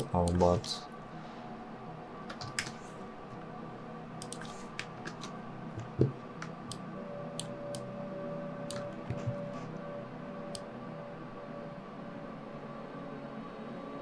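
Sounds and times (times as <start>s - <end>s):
low electrical hum: 0.0s - 14.0s
mouse and keyboard clicks: 4.2s - 6.1s.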